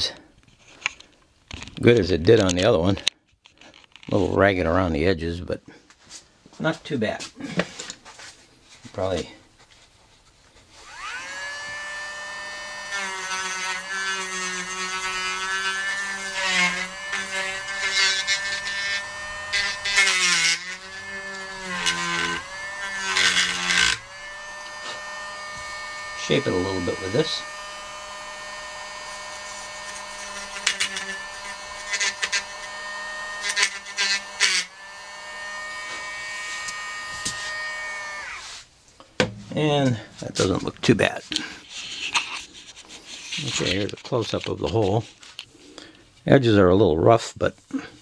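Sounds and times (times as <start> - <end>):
rotary tool whining: 10.7 - 38.7
gritty grinding: 10.8 - 38.7, 39.5 - 47.0.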